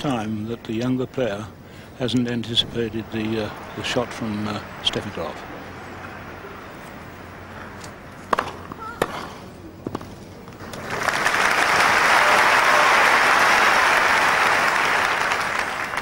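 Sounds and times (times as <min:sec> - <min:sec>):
tennis ball pops: 0:08.3 - 0:09.3
crowd applauding: 0:10.6 - 0:16.0.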